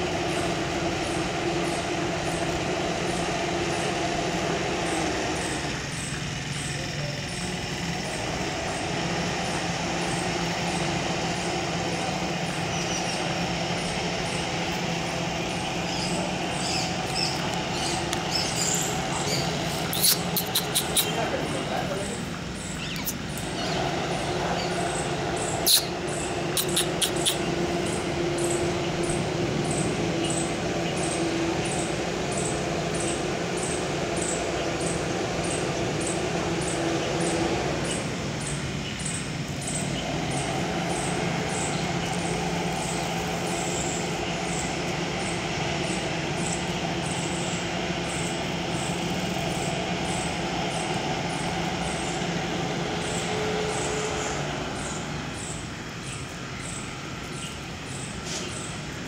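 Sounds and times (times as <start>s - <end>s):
steady mechanical hum: 0.0s - 59.0s
sharp clicks: 19.9s - 21.1s, 26.6s - 27.5s.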